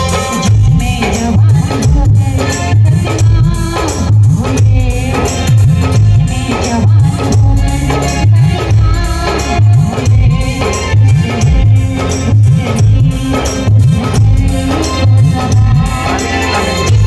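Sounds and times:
heavy bass beat: 0.0 - 17.0
jingling percussion: 0.0 - 17.0
sliding bass notes: 0.0 - 17.0.

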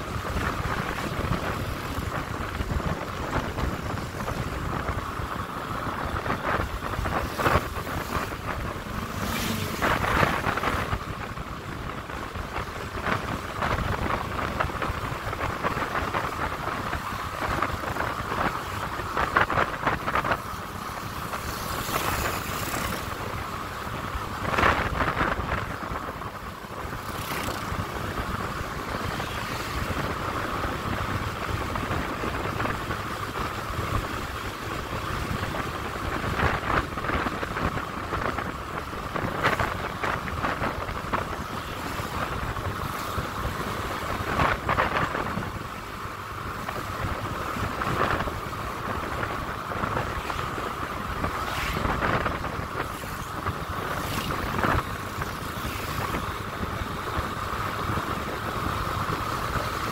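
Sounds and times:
wind rushing over microphone: 0.0 - 59.9
motorcycle engine running: 26.7 - 30.9.

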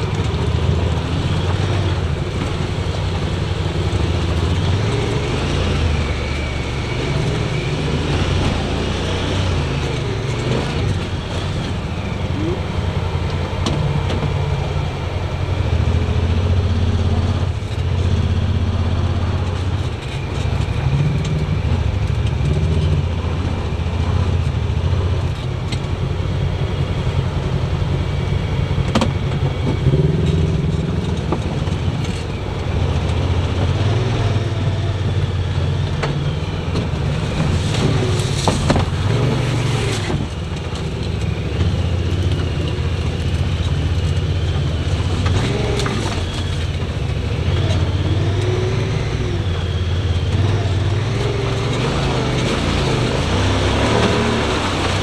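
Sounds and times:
vehicle engine low drone: 0.0 - 55.0
branches scraping vehicle body: 36.8 - 40.8.

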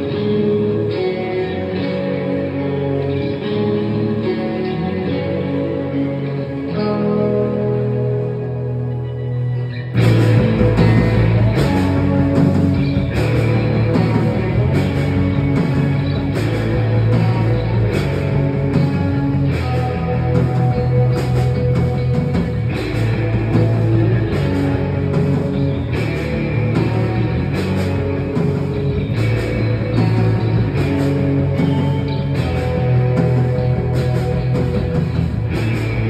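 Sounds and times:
live rock band playing: 0.0 - 36.0
drum hits and cymbals: 10.0 - 36.0.

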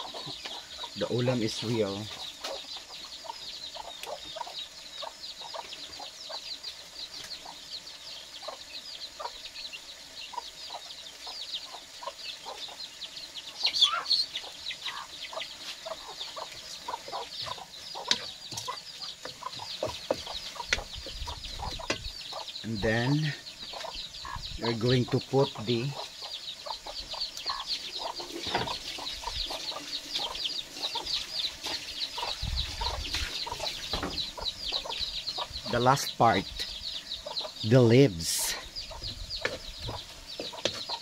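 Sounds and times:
chickens clucking and peeping: 0.0 - 41.0.

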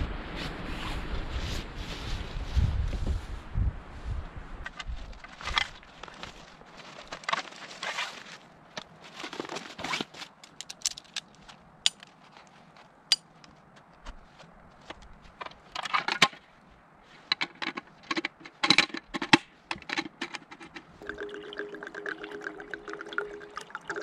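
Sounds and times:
camp table legs clicking into place: 17.3 - 20.9
liquid pouring into a cup: 21.0 - 24.0.

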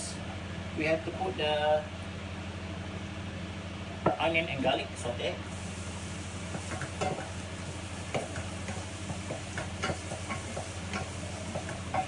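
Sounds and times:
onion sizzling in oil: 5.4 - 12.0.

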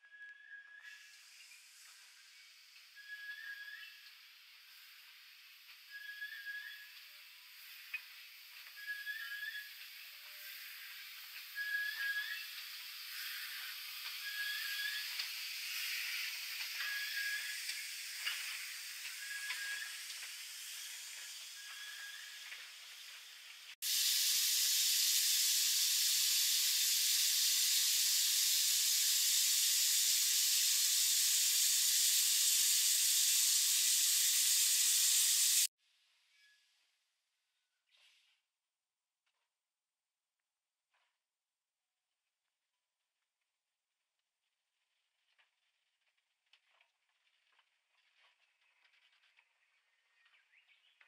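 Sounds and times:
steam hissing with high chirps: 0.3 - 35.7
loud rush of escaping steam: 7.0 - 35.7.

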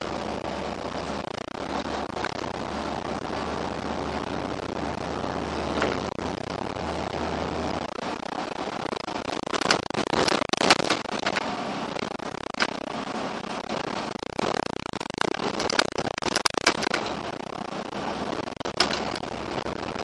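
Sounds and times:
bus cabin low hum: 0.0 - 20.0
sharp rattles and knocks: 14.3 - 17.5, 18.2 - 20.0.

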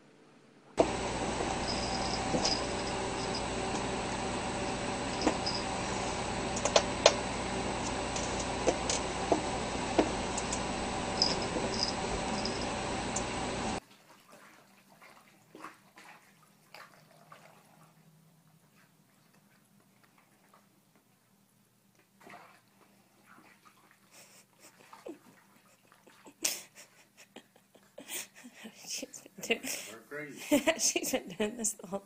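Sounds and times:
mechanical room hum: 0.7 - 13.8
sharp clicks and taps: 6.5 - 7.2.

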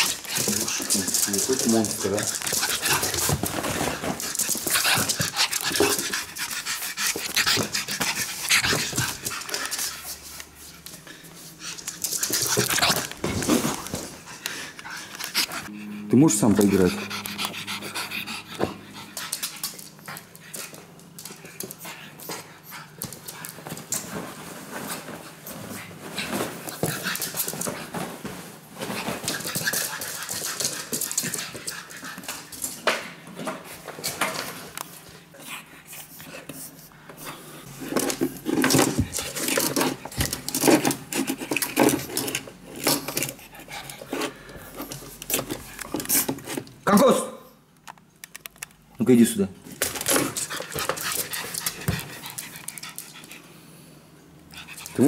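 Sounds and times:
puppy panting: 0.0 - 10.4, 11.0 - 23.4
paws clicking on laminate floor: 0.0 - 15.7, 18.6 - 46.7, 49.7 - 53.5.

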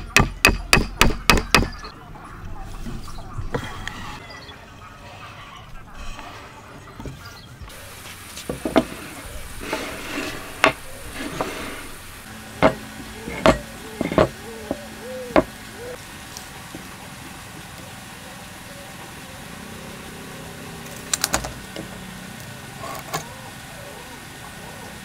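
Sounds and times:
wood sliding and rubbing: 2.6 - 15.6
wooden blocks knocking on bench: 8.5 - 9.0, 10.6 - 11.6, 12.6 - 15.5.

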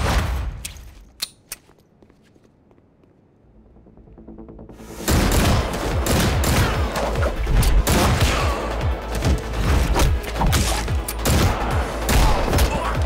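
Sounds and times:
action music score: 3.5 - 13.0
rapid gunfire: 5.1 - 7.2.

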